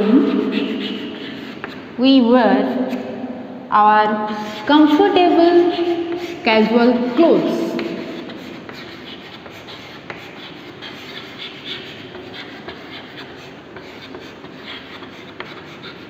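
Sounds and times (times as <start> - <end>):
chalk scratching on a chalkboard: 0.0 - 3.3, 4.2 - 16.0
chalk tap: 0.1 - 1.9, 4.4 - 6.4, 7.4 - 16.0.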